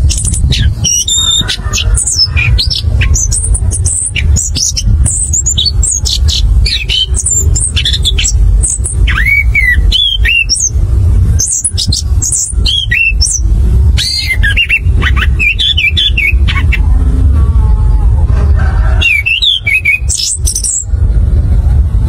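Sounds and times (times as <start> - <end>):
thrush singing rolling song: 0.0 - 21.3
steady low hum: 0.0 - 22.0.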